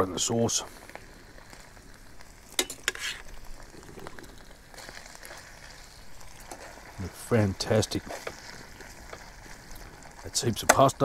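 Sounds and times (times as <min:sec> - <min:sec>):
pasta stirring in sauce: 0:01.5 - 0:10.8.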